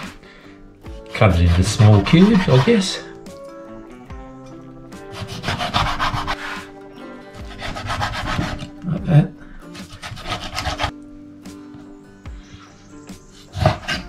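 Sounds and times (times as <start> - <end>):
knife cutting on cutting board: 1.4 - 2.9, 5.1 - 6.7, 7.5 - 8.8, 9.8 - 10.9.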